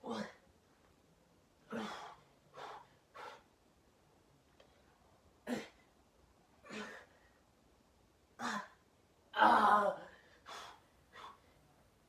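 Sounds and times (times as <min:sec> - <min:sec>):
man's forceful breaths: 0:01.7 - 0:03.5.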